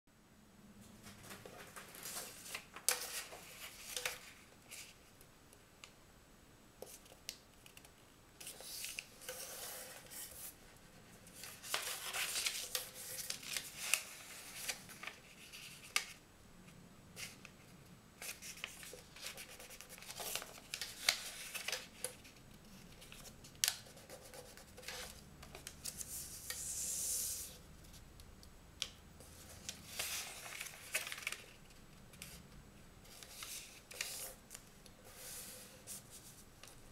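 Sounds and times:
paper rustling and crinkling: 1.0s - 5.0s, 6.9s - 16.2s, 18.2s - 27.4s, 29.3s - 32.4s, 33.1s - 36.9s
paper clicks and scrapes on table: 6.9s - 10.5s, 29.5s - 31.5s, 33.1s - 36.8s.

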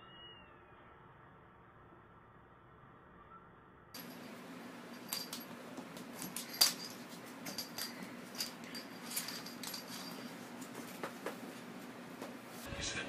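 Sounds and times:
small collar bell jingling: 4.0s - 11.0s.

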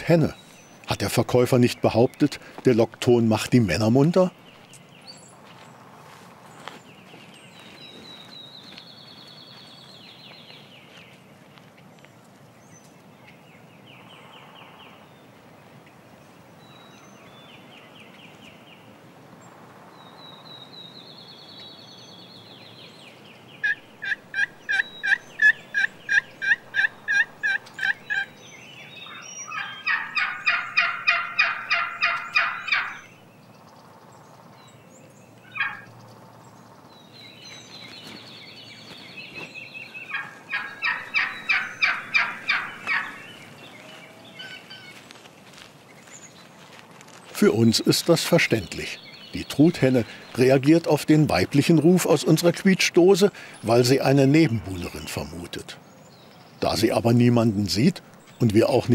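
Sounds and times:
turkey hen yelping: 23.6s - 28.3s, 29.1s - 33.1s, 35.5s - 35.9s, 40.1s - 43.2s.

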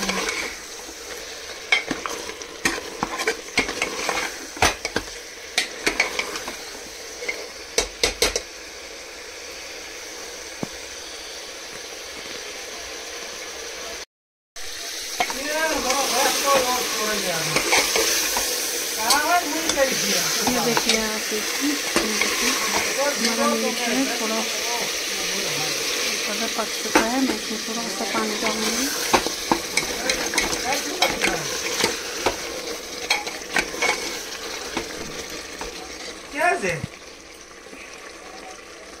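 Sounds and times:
meat sizzling in a pot: 0.0s - 39.0s
spoon scraping and knocking pot: 1.7s - 6.6s, 17.5s - 21.0s, 21.9s - 23.5s, 28.2s - 36.1s.

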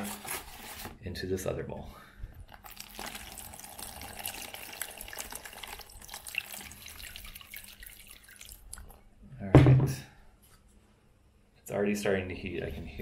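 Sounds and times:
water pouring into plastic tray: 2.5s - 9.0s.

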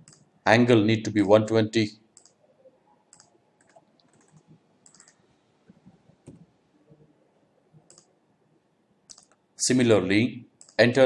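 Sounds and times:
computer mouse clicks: 0.0s - 0.3s, 2.2s - 2.4s, 3.1s - 6.5s, 7.9s - 8.1s, 9.1s - 9.4s, 10.6s - 10.8s.

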